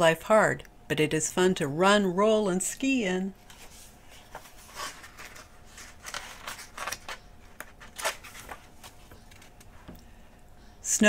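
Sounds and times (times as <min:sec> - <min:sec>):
book page turning: 0:03.4 - 0:09.7.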